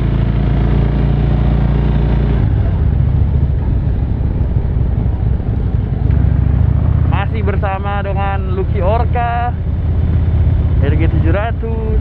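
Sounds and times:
motorcycle engine running: 0.0 - 12.0
wind on microphone: 1.0 - 8.6.

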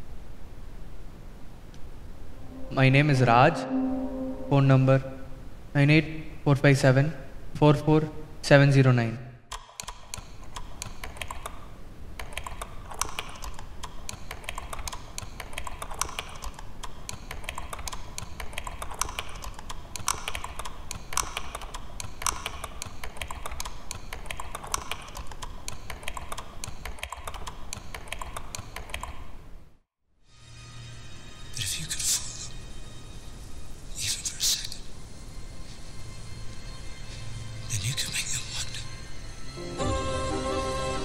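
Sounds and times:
computer keyboard typing: 9.5 - 11.6, 12.2 - 29.3.

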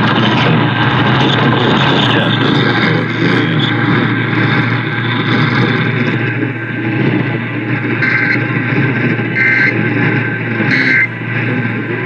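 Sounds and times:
faint muffled radio audio: 0.0 - 6.4
low hum: 0.0 - 12.0
radio static: 0.0 - 12.0.

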